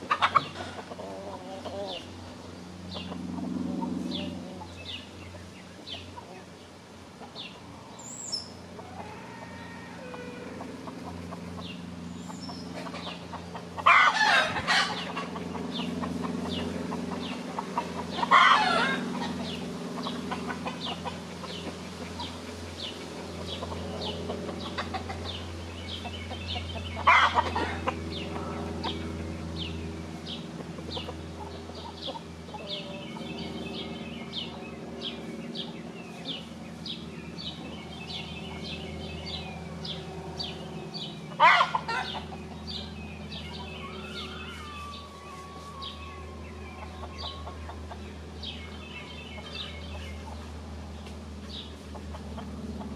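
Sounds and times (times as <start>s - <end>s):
chickens clucking: 0.0s - 52.9s
rooster calls: 8.8s - 10.8s, 13.8s - 15.2s, 18.2s - 19.4s, 27.0s - 28.6s, 41.4s - 42.2s, 43.5s - 48.0s.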